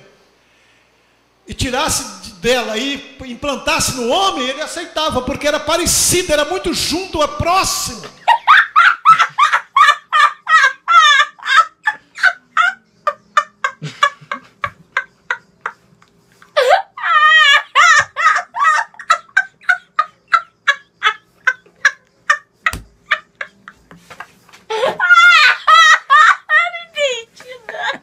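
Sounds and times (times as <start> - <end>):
boy laughing hysterically: 8.0 - 15.8, 16.5 - 23.8, 24.7 - 28.0.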